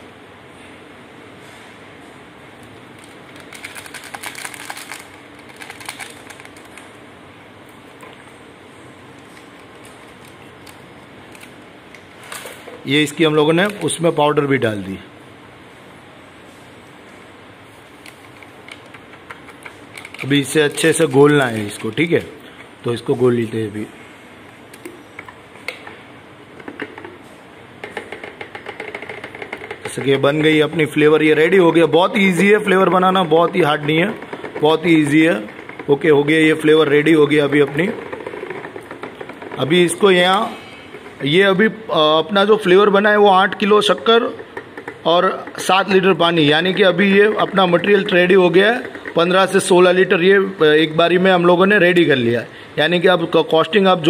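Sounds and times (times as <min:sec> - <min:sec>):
low background noise: 0:00.0 - 0:54.0
plastic packet crinkling: 0:02.8 - 0:07.0, 0:09.2 - 0:11.6
scattered knocks: 0:44.4 - 0:45.6.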